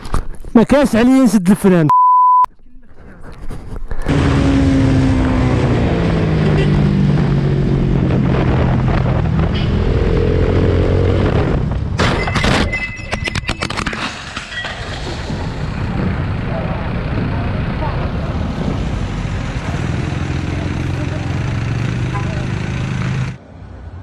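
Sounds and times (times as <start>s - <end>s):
crash with knocks and scraping: 12.0s - 16.0s
motorcycle engine running: 15.8s - 23.4s.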